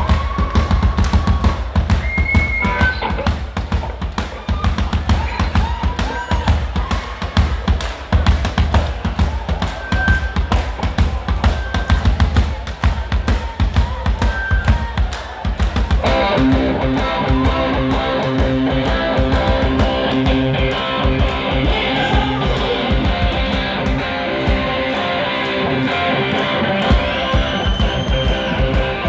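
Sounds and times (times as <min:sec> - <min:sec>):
rock drum kit played hard: 0:00.0 - 0:29.0
electric guitar chords: 0:16.0 - 0:29.0.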